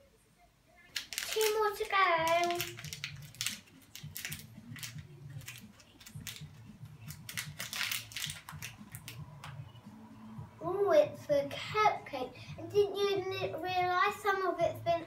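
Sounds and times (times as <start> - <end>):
foil bag crinkling and tearing: 0.9 - 9.2.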